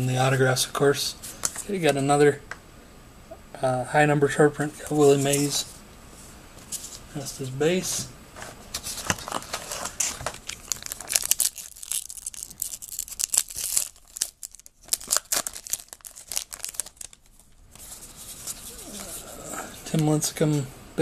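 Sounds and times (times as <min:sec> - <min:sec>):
wrapper tearing and crinkling: 0:08.9 - 0:17.6.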